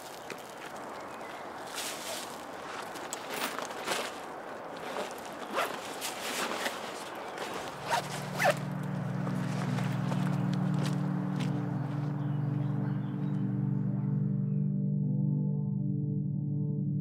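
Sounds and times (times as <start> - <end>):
zipper pulled on a bag: 4.8 - 8.6
low music drone: 7.5 - 17.0.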